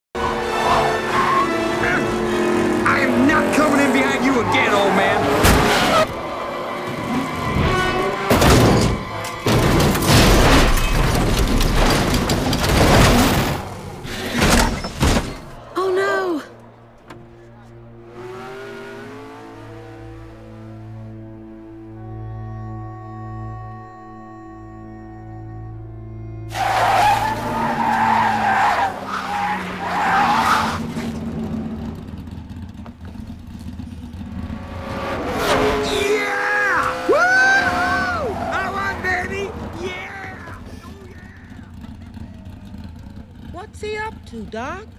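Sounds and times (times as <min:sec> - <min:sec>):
tyres skidding with squeal: 0:00.2 - 0:22.2, 0:26.5 - 0:43.6
background music: 0:15.6 - 0:30.3
soft music: 0:21.6 - 0:26.5.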